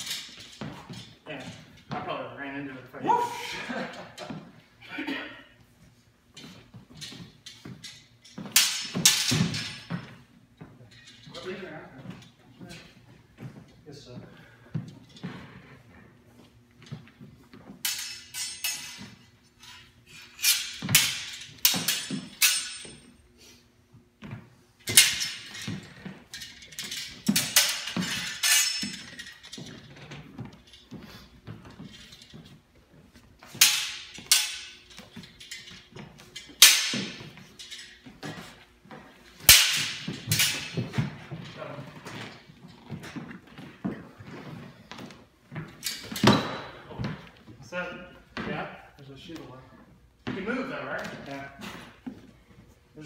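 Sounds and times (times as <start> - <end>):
steel swords clashing: 7.9 - 10.0, 17.8 - 23.2, 24.8 - 29.9, 33.4 - 38.4, 39.4 - 41.2
metallic ring: 17.8 - 23.2, 24.9 - 29.8.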